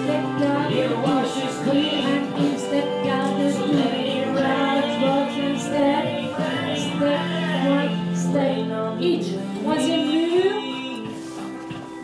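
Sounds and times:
song with sung vocals: 0:00.0 - 0:12.0.

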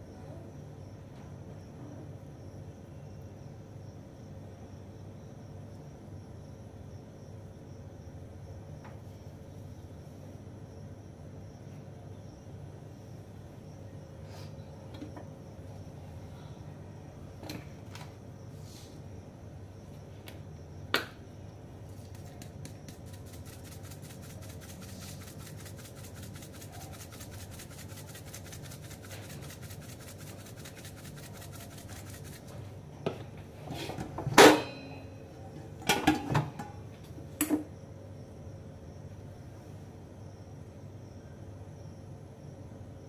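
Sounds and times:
spice ticking from container: 0:22.0 - 0:32.5.

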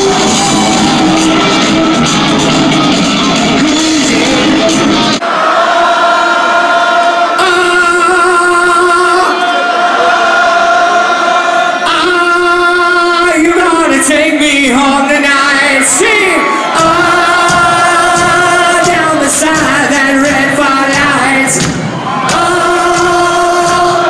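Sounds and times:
live rock band: 0:00.0 - 0:05.2
man singing into microphone: 0:03.3 - 0:05.1, 0:07.3 - 0:10.1, 0:11.8 - 0:21.7, 0:22.3 - 0:24.0.

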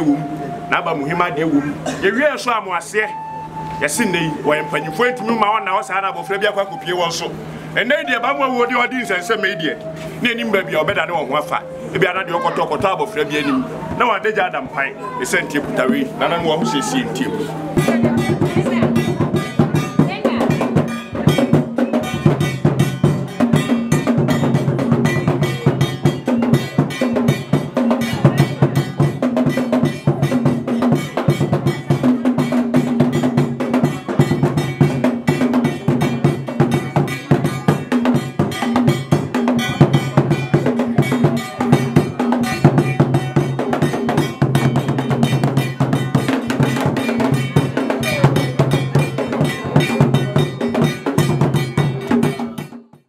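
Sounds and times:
drum ensemble playing: 0:00.0 - 0:53.0
struck metal bell: 0:17.7 - 0:52.8.

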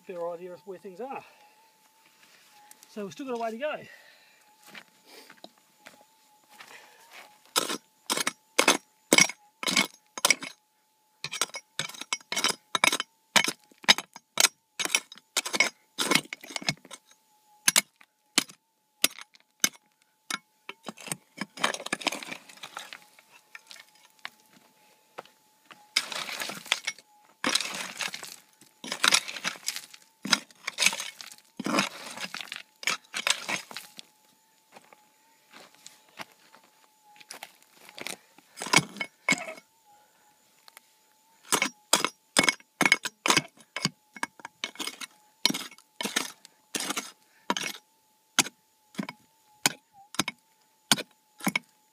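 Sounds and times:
pick striking rock: 0:07.6 - 0:10.5, 0:11.3 - 0:17.0, 0:25.9 - 0:33.8
scraping through gravel: 0:20.8 - 0:24.1, 0:25.9 - 0:34.0.

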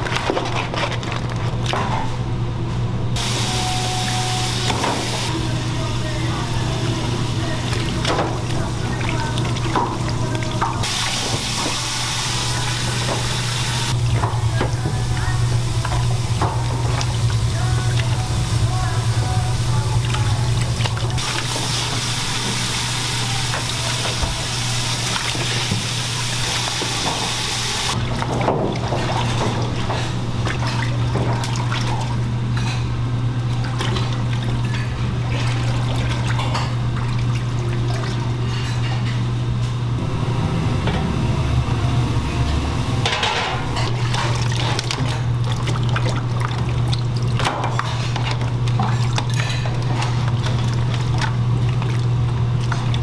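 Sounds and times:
wet knocks and clatter: 0:00.0 - 0:02.1, 0:43.0 - 0:53.0
steady low hum: 0:01.3 - 0:53.0
sink sprayer water splashing: 0:03.2 - 0:29.8.

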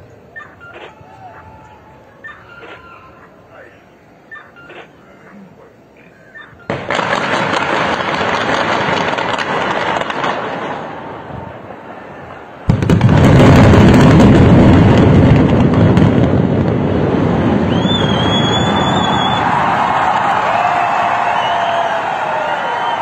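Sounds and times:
explosive charges crackling: 0:06.7 - 0:11.3, 0:12.7 - 0:20.4
building collapsing rumble: 0:12.7 - 0:20.4
loud blast: 0:12.7 - 0:23.0.

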